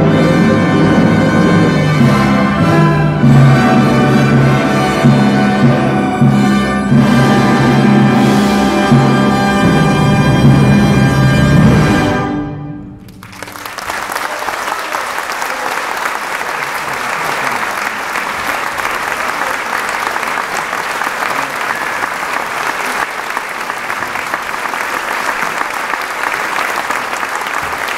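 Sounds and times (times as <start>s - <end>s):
audience applauding: 13.0s - 27.9s.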